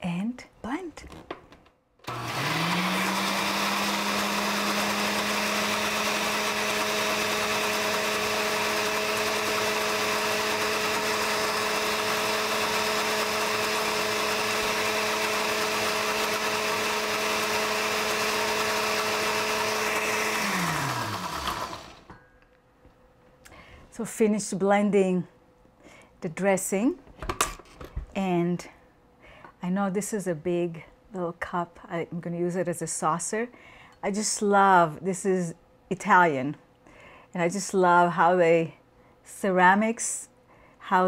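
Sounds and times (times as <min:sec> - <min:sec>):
blender motor running: 0:02.0 - 0:22.1.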